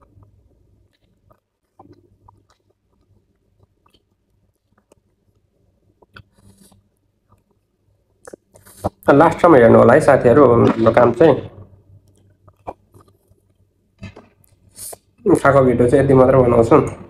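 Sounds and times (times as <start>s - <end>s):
man chewing food: 0.0s - 9.1s, 12.0s - 15.2s.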